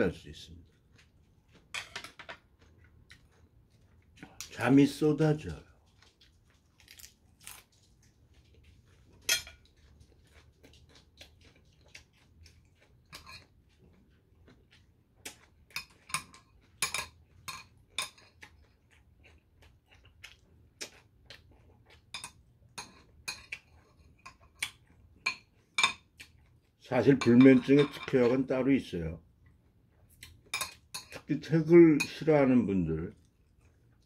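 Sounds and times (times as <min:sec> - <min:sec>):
spoon clinking on ceramic bowls: 0:09.3 - 0:09.6, 0:15.8 - 0:18.3, 0:25.2 - 0:26.1, 0:27.1 - 0:28.5, 0:30.5 - 0:31.3.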